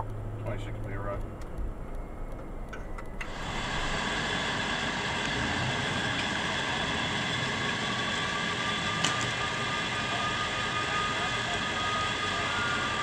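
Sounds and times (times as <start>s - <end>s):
fire engines idling: 3.2s - 13.0s.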